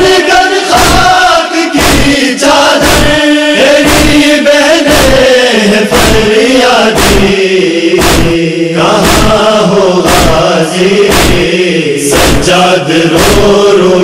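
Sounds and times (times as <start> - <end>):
men chanting a lament: 0.0 - 14.0
hand strikes on chest: 1.8 - 2.2, 2.8 - 3.2, 3.8 - 4.2, 7.0 - 7.3, 8.0 - 8.4, 9.0 - 9.4, 10.0 - 10.4, 11.1 - 11.5, 12.1 - 12.5.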